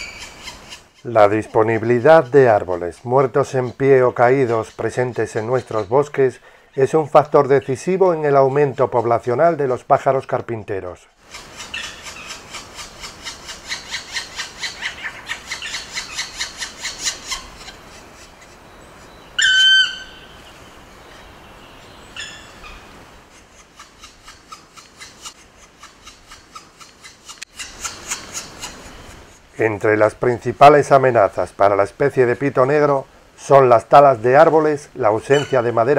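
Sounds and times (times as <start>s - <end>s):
loud clear woodpecker call: 0.0s - 1.1s, 11.2s - 22.9s, 23.5s - 29.2s, 35.3s - 35.9s
nestlings begging calls: 0.0s - 7.7s, 11.3s - 23.0s, 35.1s - 35.9s.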